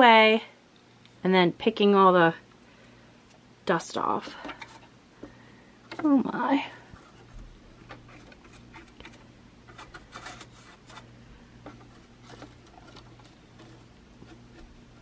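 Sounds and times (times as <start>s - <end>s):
brush scratching on metal: 5.9s - 15.0s.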